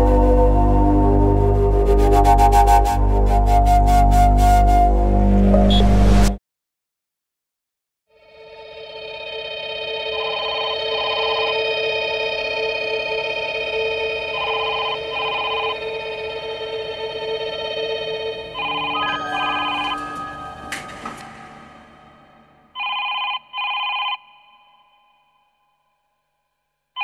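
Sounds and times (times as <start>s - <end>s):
droning music: 0.0s - 6.3s, 11.5s - 22.8s
telephone ringing: 9.7s - 12.2s, 14.2s - 16.3s, 18.5s - 21.4s, 22.7s - 24.8s
sharp hit: 19.9s - 22.8s.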